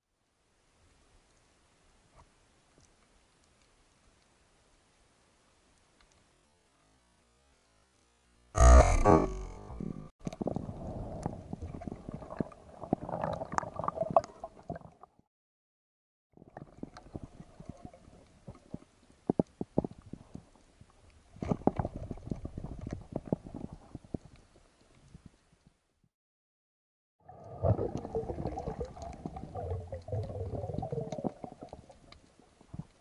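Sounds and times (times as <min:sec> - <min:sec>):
underwater gurgling: 0:10.2 - 0:15.1, 0:27.2 - 0:33.0.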